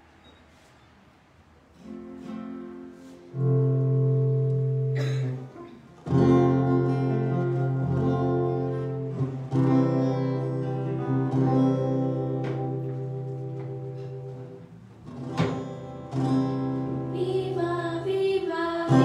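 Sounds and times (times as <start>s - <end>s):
held instrumental chords: 1.8s - 19.0s.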